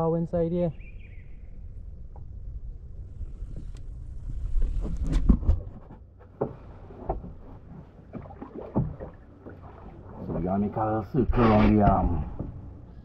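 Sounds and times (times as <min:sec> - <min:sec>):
paddle splashing in water: 0:04.4 - 0:12.6.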